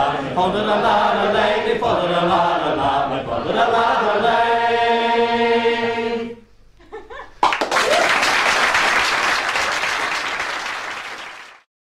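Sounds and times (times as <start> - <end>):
audience applauding: 7.4 - 11.7.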